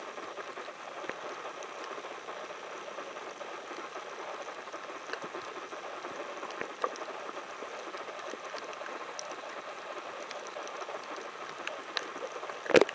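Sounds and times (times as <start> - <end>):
underwater crackling: 0.0 - 12.9
faint clicks: 0.4 - 12.9.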